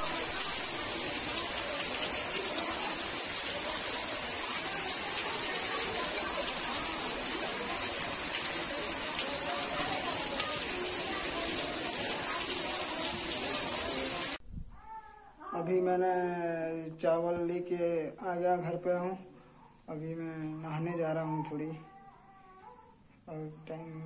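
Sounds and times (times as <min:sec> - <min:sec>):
heavy rain pouring: 0:00.0 - 0:14.4.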